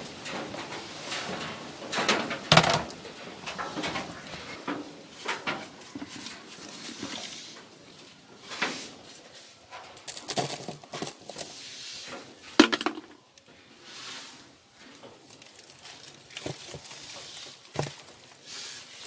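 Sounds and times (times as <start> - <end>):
clicks taps and rustles in basin: 0.0 - 7.8, 9.7 - 13.6, 14.8 - 19.0
knock on plastic basin: 12.6 - 13.2.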